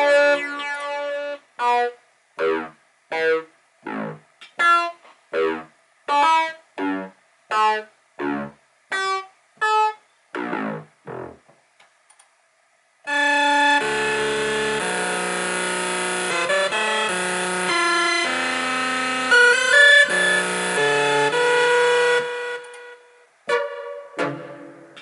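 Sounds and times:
short synthesizer notes: 0:00.0 - 0:01.4, 0:03.8 - 0:04.2, 0:10.3 - 0:11.4
synthesizer held chord: 0:00.0 - 0:02.7, 0:03.9 - 0:04.2, 0:13.1 - 0:25.0.

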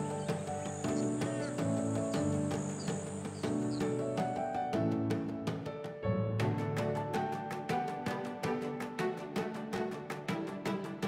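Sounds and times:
background music with quick pulse: 0:00.0 - 0:05.7.

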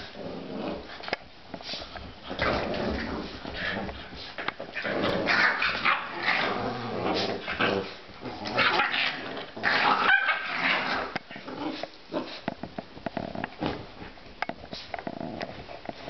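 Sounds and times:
puppies growling and yipping: 0:04.6 - 0:12.4.

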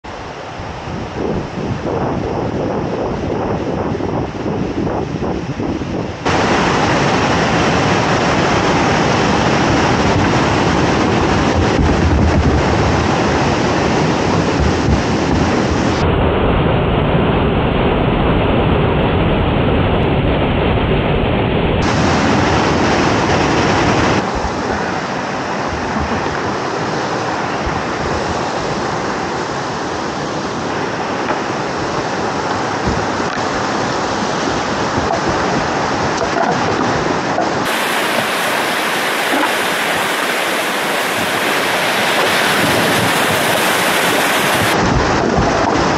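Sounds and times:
whitewater rushing down rock: 0:06.2 - 0:16.0, 0:21.8 - 0:45.9.

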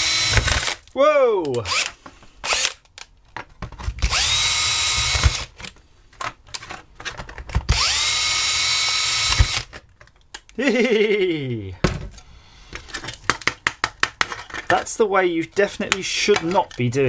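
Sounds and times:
cordless drill whine: 0:00.0 - 0:00.8, 0:04.0 - 0:05.5, 0:07.7 - 0:09.7.

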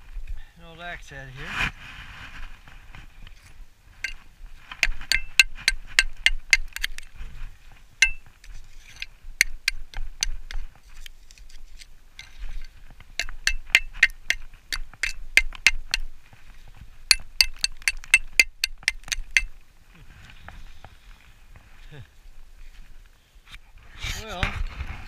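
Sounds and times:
metal tool striking iron axe head: 0:04.8 - 0:07.0, 0:08.0 - 0:08.2, 0:09.4 - 0:10.6, 0:13.2 - 0:16.1, 0:17.1 - 0:19.5.

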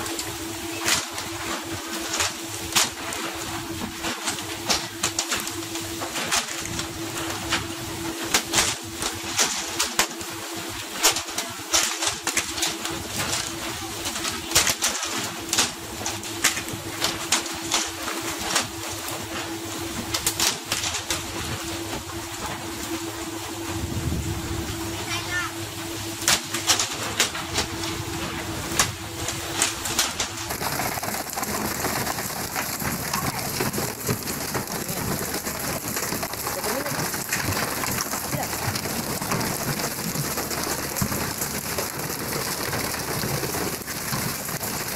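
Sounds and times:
churning water rushing: 0:00.0 - 0:44.9
fish splashing and slapping on deck: 0:00.0 - 0:44.9
boat hum: 0:21.4 - 0:44.8.

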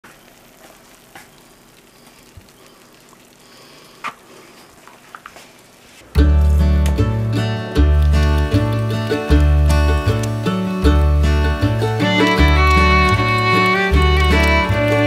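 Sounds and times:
faint crackling and clicks: 0:00.0 - 0:06.1, 0:07.8 - 0:15.0
low hiss: 0:00.0 - 0:15.0
acoustic guitar music: 0:06.1 - 0:15.0.

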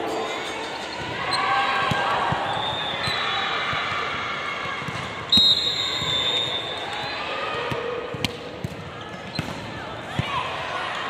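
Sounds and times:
referee's whistle blast: 0:05.3 - 0:06.8.

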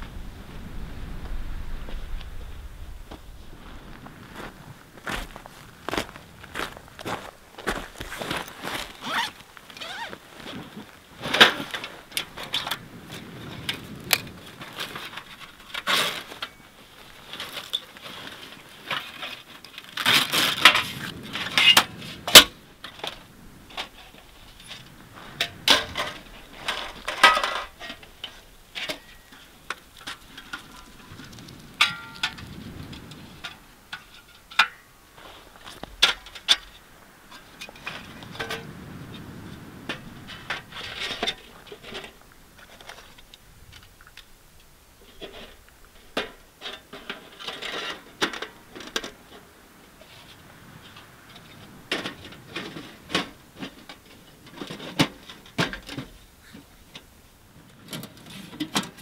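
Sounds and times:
fabric packs rustling: 0:03.5 - 0:12.1.

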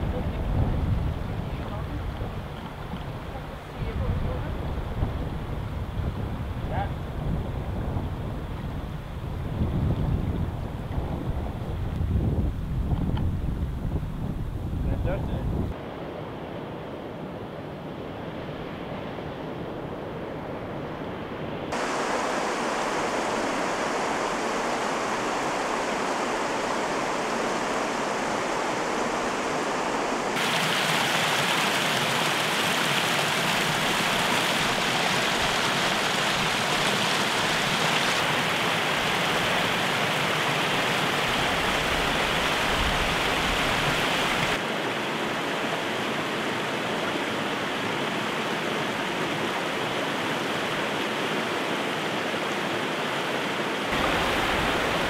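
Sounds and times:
river water rushing over boulders: 0:21.7 - 0:55.0.

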